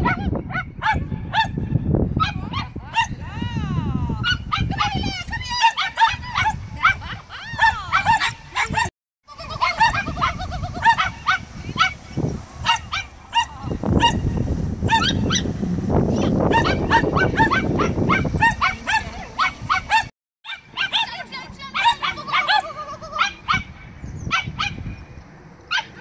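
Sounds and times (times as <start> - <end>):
small dog yapping: 16.5 - 23.7.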